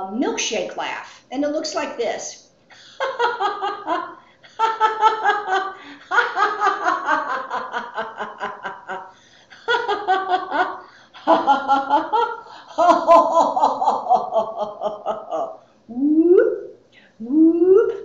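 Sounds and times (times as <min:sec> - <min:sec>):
woman laughing: 0:02.7 - 0:15.6.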